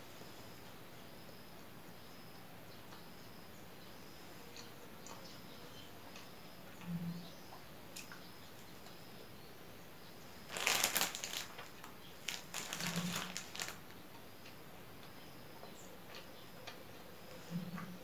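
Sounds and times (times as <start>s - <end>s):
plastic bag crinkling: 10.4s - 14.0s.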